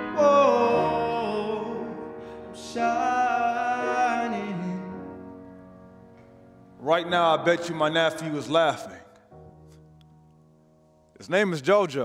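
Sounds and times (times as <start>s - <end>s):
man singing: 0.0s - 5.3s, 6.8s - 9.1s
grand piano accompaniment: 0.0s - 12.0s.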